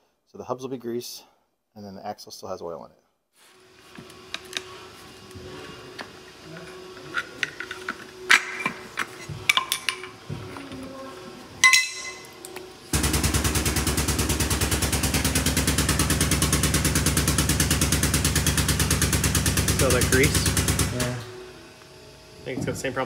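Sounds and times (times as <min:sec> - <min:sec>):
hand tools clinking on metal: 0:11.6 - 0:12.4
rapid mechanical pounding: 0:12.9 - 0:21.4.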